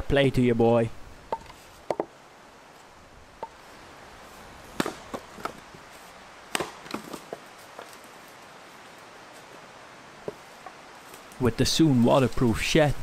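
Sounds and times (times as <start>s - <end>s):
axe splitting wood: 4.8s - 5.6s, 6.5s - 7.4s.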